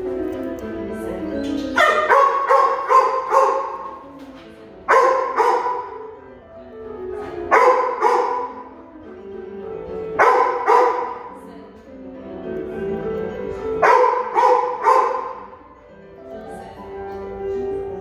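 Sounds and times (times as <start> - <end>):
dog barking in echoing hall: 1.8 - 4.2, 4.8 - 6.3, 7.3 - 8.8, 10.1 - 11.5, 13.6 - 15.7.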